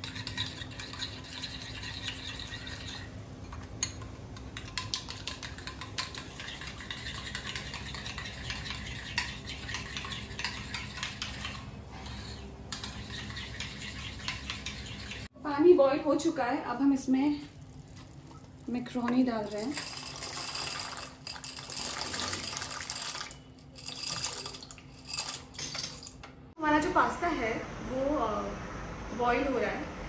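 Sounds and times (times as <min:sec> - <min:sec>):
spoon scraping glass bowl: 0:00.0 - 0:03.2, 0:04.6 - 0:15.3.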